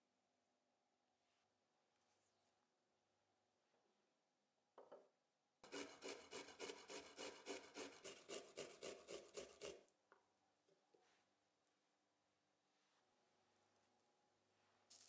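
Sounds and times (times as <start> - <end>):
garlic rasping on a metal grater: 5.6 - 9.8.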